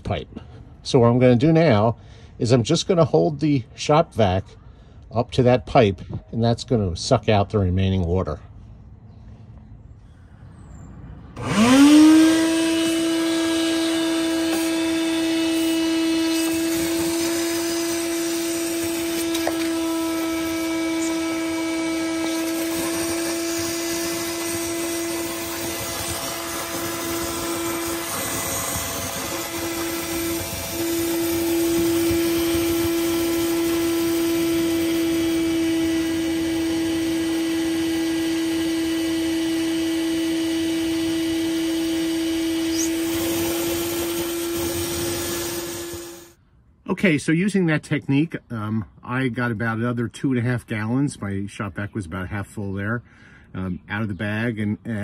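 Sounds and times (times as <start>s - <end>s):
shop vacuum running: 11.2s - 46.4s.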